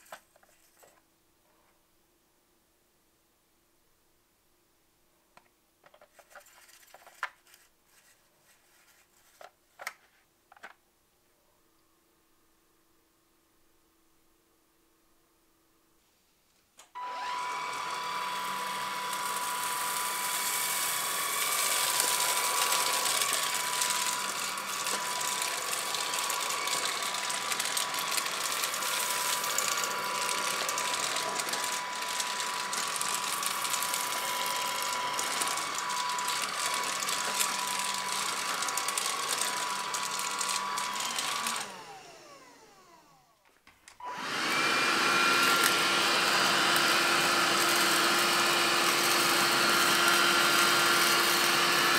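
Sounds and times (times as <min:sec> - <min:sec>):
floor brush sweeping tiles: 0:00.0 - 0:01.0, 0:06.0 - 0:10.3, 0:17.5 - 0:41.9, 0:44.2 - 0:51.9
vacuum cleaner whining: 0:16.8 - 0:51.9
handheld vacuum high whine: 0:17.0 - 0:43.4, 0:44.0 - 0:51.9.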